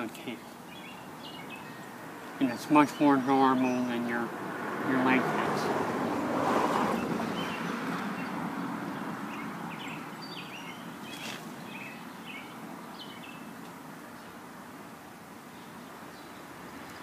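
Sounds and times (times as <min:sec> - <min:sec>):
small birds chirping: 0:00.0 - 0:14.6, 0:15.4 - 0:17.0
vehicle passing: 0:01.0 - 0:12.4.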